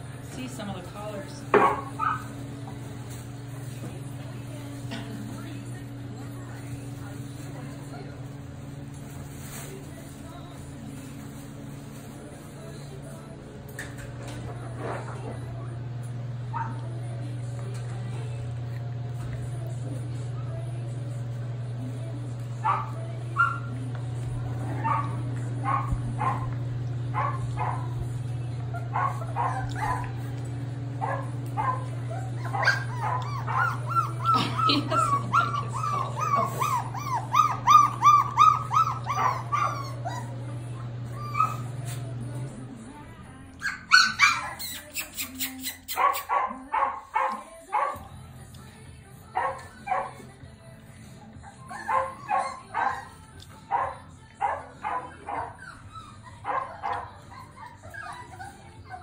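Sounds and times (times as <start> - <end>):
puppies yipping and whimpering: 28.6 - 30.4, 31.0 - 42.0, 43.6 - 47.4, 51.2 - 59.0.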